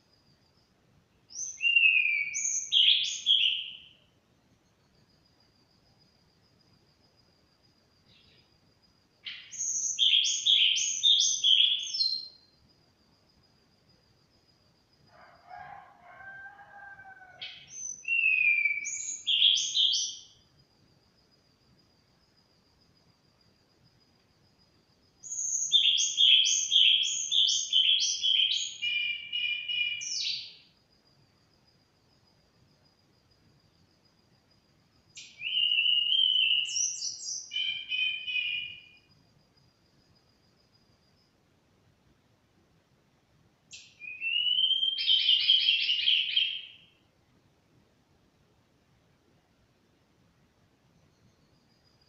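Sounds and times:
songbird whistling and trilling: 1.4 - 3.9, 9.3 - 12.4, 17.4 - 20.2, 25.2 - 30.5, 35.2 - 38.9, 43.7 - 46.8.

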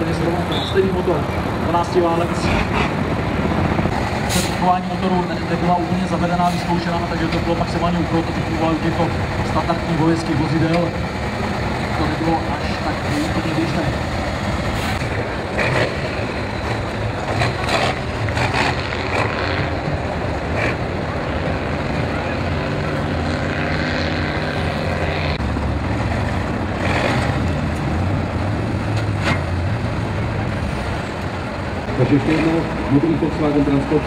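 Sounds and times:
truck diesel engine under load: 0.0 - 34.0.

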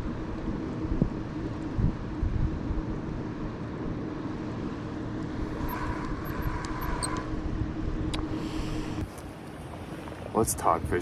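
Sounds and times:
faint low hum: 4.4 - 9.0.

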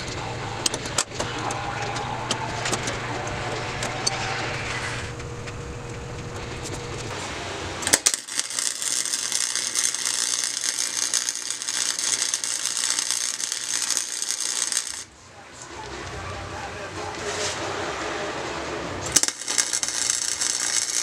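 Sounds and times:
arc welding crackle: 7.0 - 15.1, 19.0 - 21.0.

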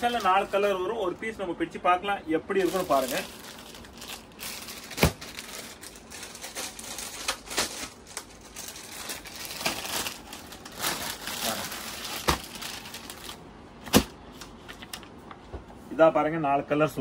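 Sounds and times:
plastic packaging crinkling: 0.0 - 1.1, 2.5 - 14.1.

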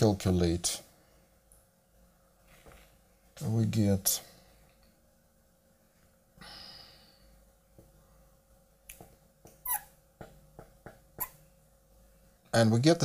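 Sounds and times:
marker tapping and squeaking on glass: 9.5 - 11.4.

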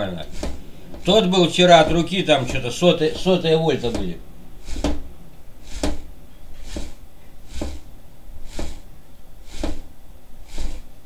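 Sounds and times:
rotor spinning rush: 0.0 - 11.0
low thump: 3.2 - 5.1.

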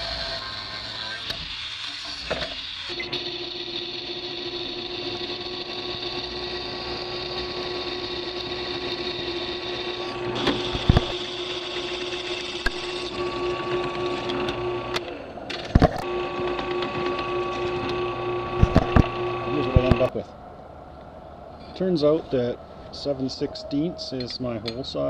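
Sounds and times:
drill press drilling steel: 0.0 - 15.1, 15.7 - 20.1
grinder cutting steel: 0.0 - 20.1.

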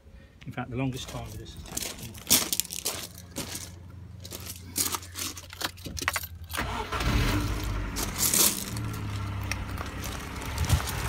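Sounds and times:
car engine cranking and idling: 1.4 - 11.0
keys jangling: 1.7 - 6.6
ignition clicks: 6.1 - 7.8.

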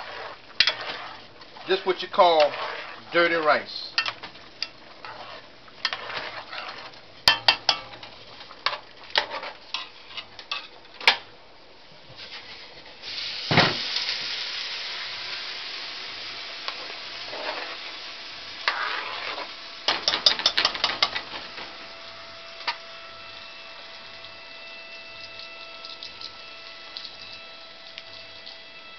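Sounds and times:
metal spoon clinking in pot: 7.3 - 7.9
hiss: 13.0 - 18.0.

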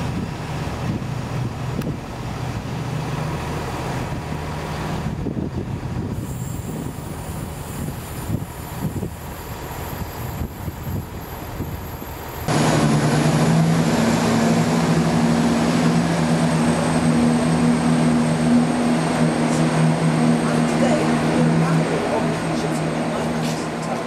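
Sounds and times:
diesel train engines droning: 0.0 - 24.0
low rumble: 12.5 - 24.0.

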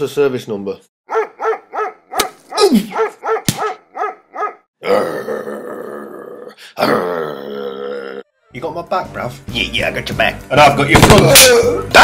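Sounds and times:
dog barking in quick yaps: 1.1 - 2.4, 3.0 - 4.6.

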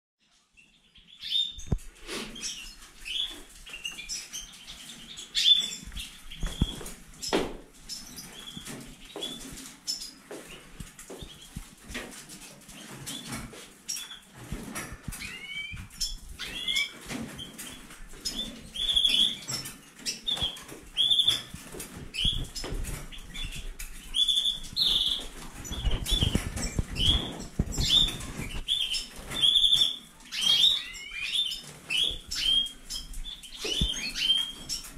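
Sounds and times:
finches and canaries chirping: 0.2 - 34.9
wing fluttering: 11.2 - 30.9.

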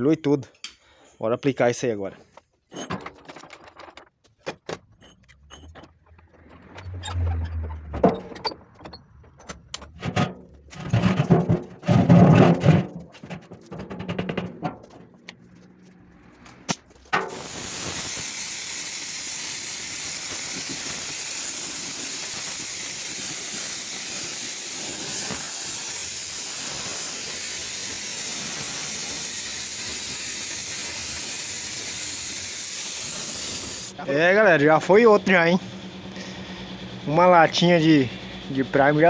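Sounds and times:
spray gun hissing: 17.2 - 33.9
spray gun short bursts: 17.2 - 33.9.

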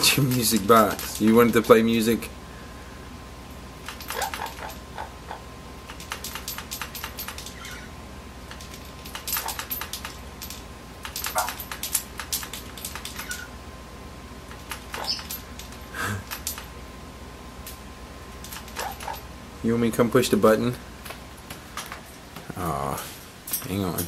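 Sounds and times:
parrot squeaks: 7.5 - 8.0, 13.1 - 13.6, 15.0 - 15.3.

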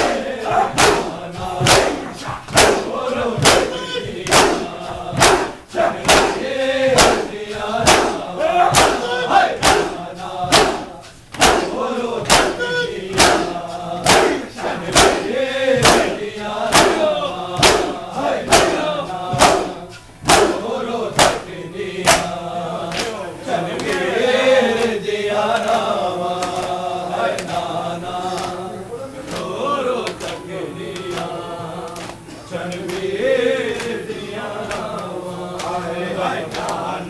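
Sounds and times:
crowd chanting in unison: 0.0 - 37.0
men slapping chests: 0.0 - 37.0.

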